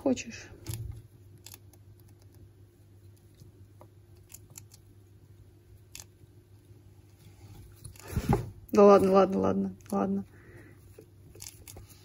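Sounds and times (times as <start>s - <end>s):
low steady hum: 0.0s - 12.0s
gerbils clicking and scratching: 0.3s - 12.0s.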